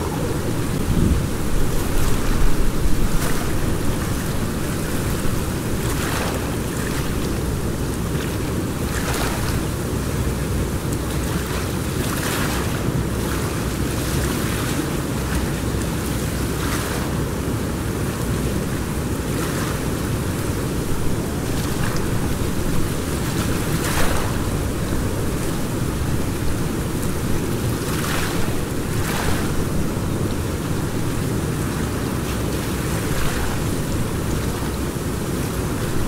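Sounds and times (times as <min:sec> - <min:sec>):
water splashing: 0:00.0 - 0:09.9, 0:19.7 - 0:36.0
wind on microphone: 0:00.0 - 0:14.7, 0:15.4 - 0:36.0
river water rushing: 0:00.0 - 0:36.0.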